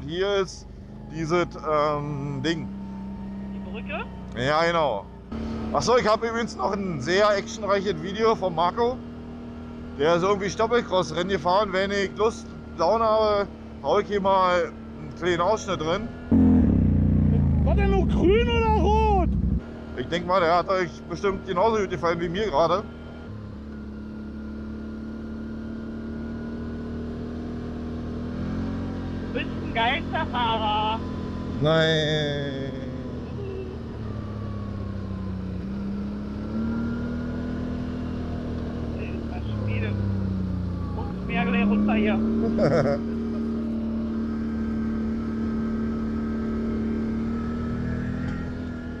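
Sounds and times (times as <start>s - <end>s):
quad engine running: 15.9s - 49.0s.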